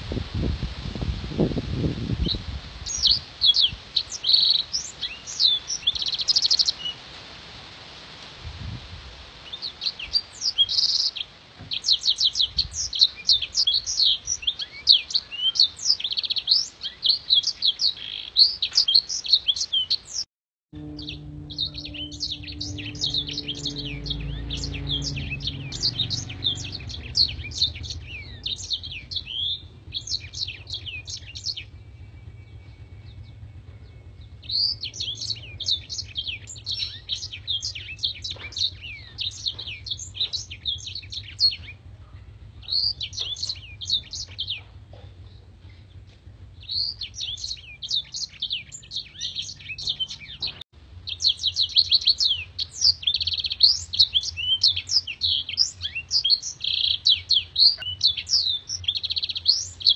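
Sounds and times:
canary singing: 0:02.2 - 0:07.0, 0:09.4 - 0:41.8, 0:42.4 - 0:46.0, 0:46.6 - 0:59.9
low hum: 0:20.8 - 0:51.1.

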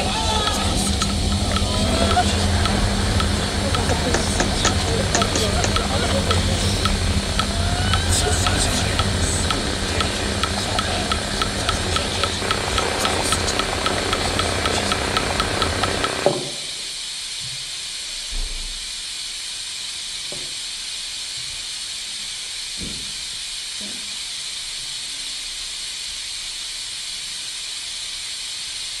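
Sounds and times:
loud noise with rapid ticking: 0:00.0 - 0:16.6
white-noise hiss: 0:00.0 - 0:29.0.

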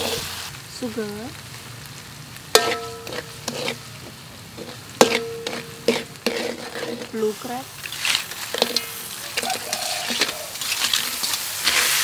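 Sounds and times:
spatula scraping a wok: 0:00.0 - 0:00.4, 0:02.5 - 0:12.0
garlic sizzling in oil: 0:00.0 - 0:12.0
spatula knocking on wok: 0:02.6 - 0:03.3, 0:05.0 - 0:06.0.

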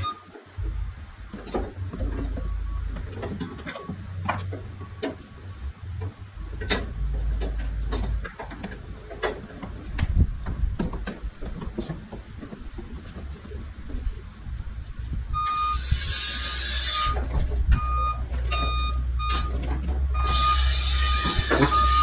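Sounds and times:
low rumble: 0:00.6 - 0:09.0.

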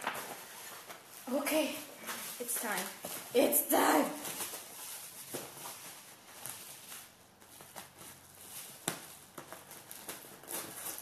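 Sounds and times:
packaging rustling: 0:00.0 - 0:01.3, 0:04.2 - 0:11.0.

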